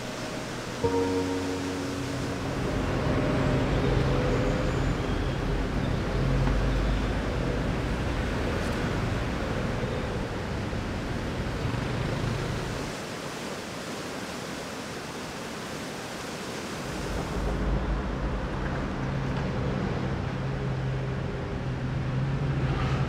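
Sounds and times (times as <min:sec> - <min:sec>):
water flowing: 0:00.0 - 0:06.4
wind: 0:00.0 - 0:23.0.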